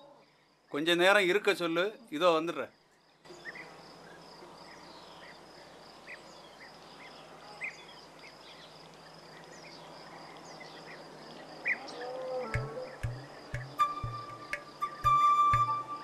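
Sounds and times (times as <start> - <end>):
bird chirps: 11.6 - 16.0.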